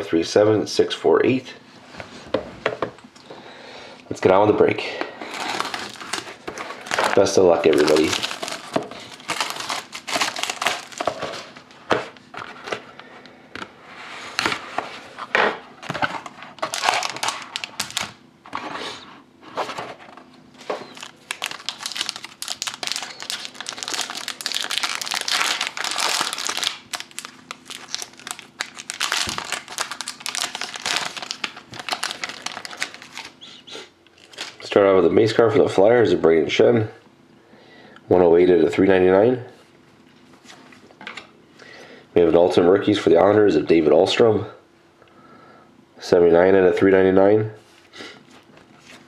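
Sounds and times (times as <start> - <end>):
plastic wrapper crinkling: 5.2 - 11.7, 16.6 - 18.2, 20.6 - 34.7.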